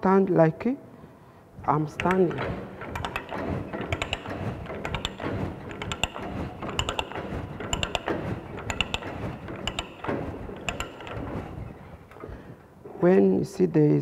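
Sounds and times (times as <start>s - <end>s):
ratchet clicks: 1.9s - 12.3s.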